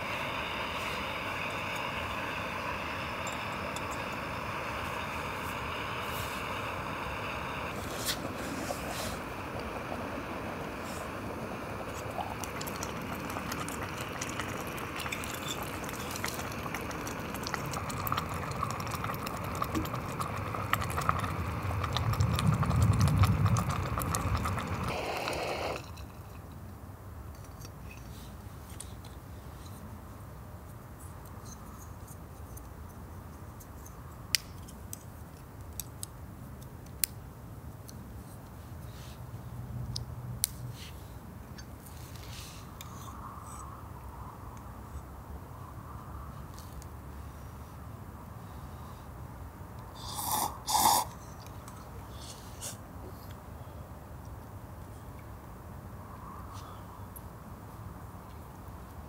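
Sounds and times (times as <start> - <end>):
wind rumbling on microphone: 0.4 - 25.6.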